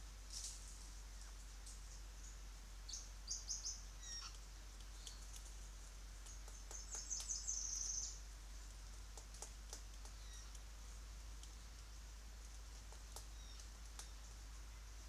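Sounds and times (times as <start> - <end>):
faint clicks: 4.2 - 5.6, 6.2 - 7.4, 8.8 - 10.7, 11.3 - 14.4.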